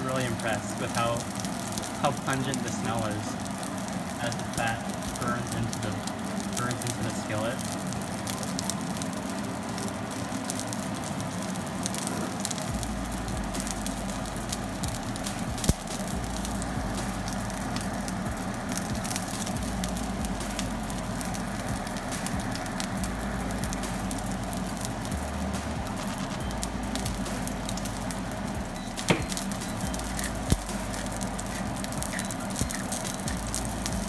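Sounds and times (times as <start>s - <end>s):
steak sizzling in skillet: 0.0s - 34.0s
sharp fat pop: 29.1s - 29.4s.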